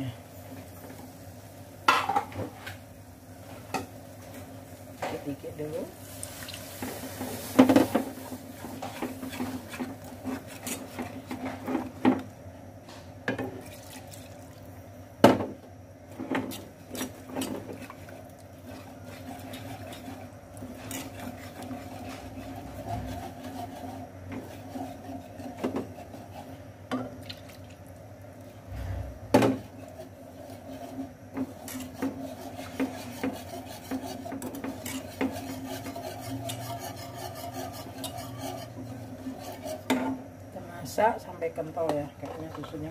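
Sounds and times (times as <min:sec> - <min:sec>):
wire whisk scraping metal pan: 0:18.7 - 0:26.5, 0:29.7 - 0:40.1.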